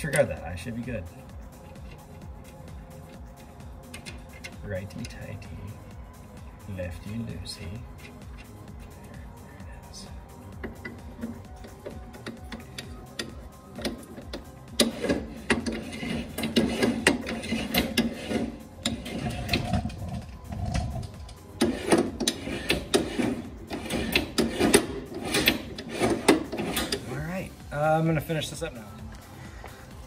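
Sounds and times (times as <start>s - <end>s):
metal clicking and rattling: 1.5s - 5.4s, 7.9s - 9.0s, 10.5s - 27.1s.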